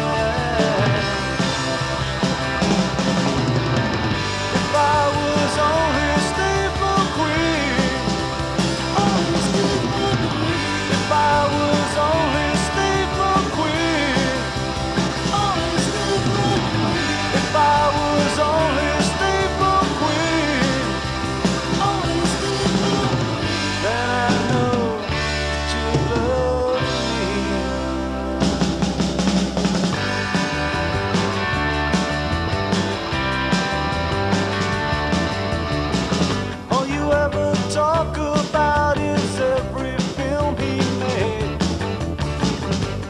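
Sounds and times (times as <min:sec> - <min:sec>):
rock band playing: 0:00.0 - 0:43.0.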